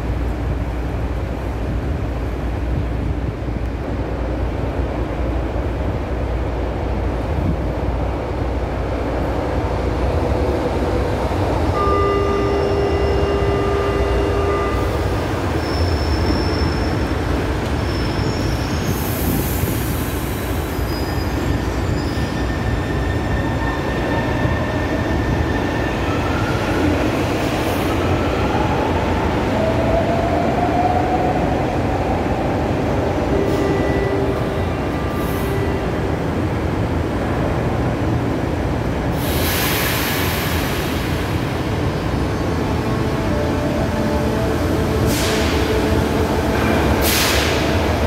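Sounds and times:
train low rumble: 0:00.0 - 0:48.0
wheel squeal: 0:15.6 - 0:17.2.

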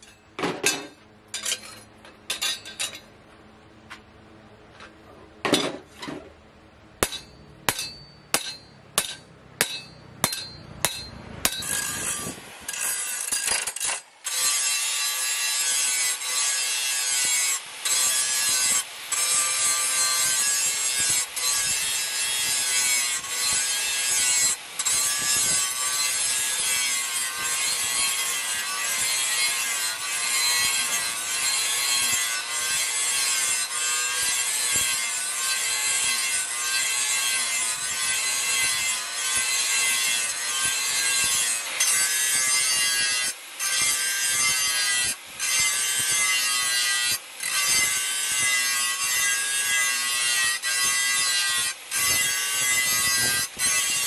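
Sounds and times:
hammer blows on anvil: 0:07.0 - 0:12.2
angle grinder grinding steel: 0:07.0 - 0:54.0.

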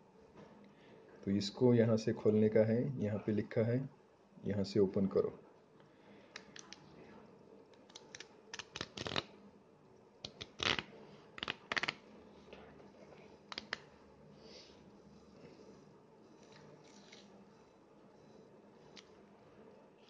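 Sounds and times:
cardboard tear strip ripping: 0:08.5 - 0:09.3.

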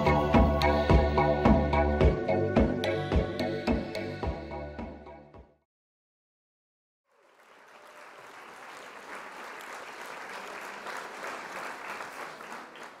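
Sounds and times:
hands clapping: 0:07.1 - 0:13.0.

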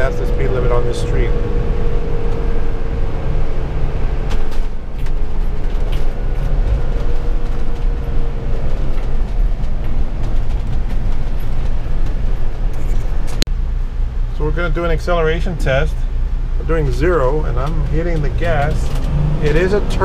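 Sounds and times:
engine drone: 0:00.0 - 0:20.0
road rumble: 0:00.0 - 0:20.0.

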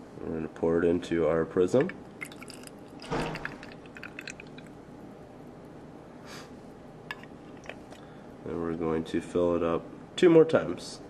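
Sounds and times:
water trickling and dripping: 0:01.8 - 0:04.8.

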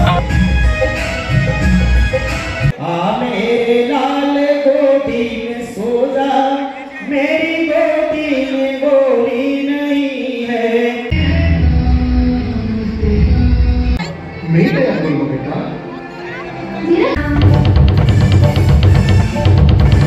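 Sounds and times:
loud music with heavy bass: 0:00.0 - 0:02.8, 0:11.1 - 0:14.0, 0:17.1 - 0:20.0
man singing into a microphone: 0:02.8 - 0:14.0.

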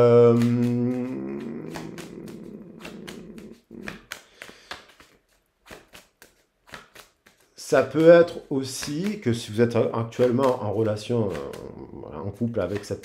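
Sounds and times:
person humming low: 0:00.0 - 0:04.1, 0:11.2 - 0:12.5
cards clicking on table: 0:00.1 - 0:13.0.

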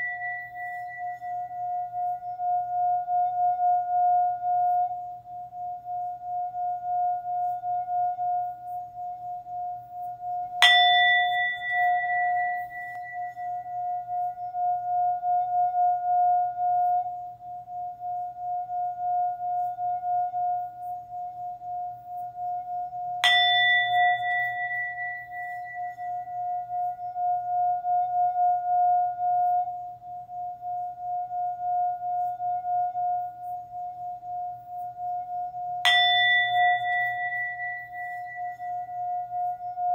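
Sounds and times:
singing bowl strike: 0:00.0 - 0:08.5, 0:10.3 - 0:20.6, 0:23.2 - 0:29.8, 0:35.3 - 0:39.9
singing bowl ringing: 0:00.0 - 0:39.9.

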